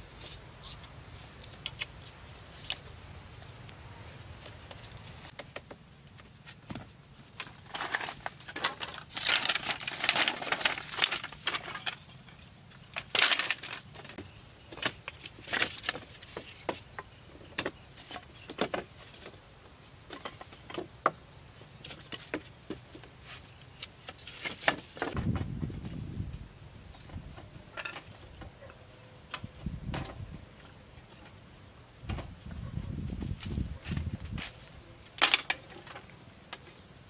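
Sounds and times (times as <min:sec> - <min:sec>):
bamboo sticks knocking and clicking: 0:04.4 - 0:19.4, 0:35.2 - 0:36.8.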